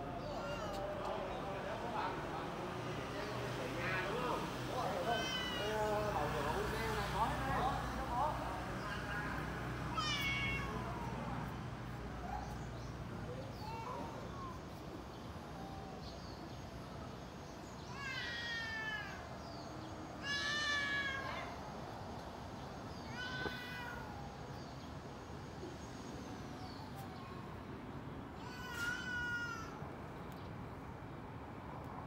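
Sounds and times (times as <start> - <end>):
cat meowing: 0.2 - 1.1, 4.9 - 5.9, 9.9 - 11.3, 17.9 - 19.3, 23.0 - 24.3.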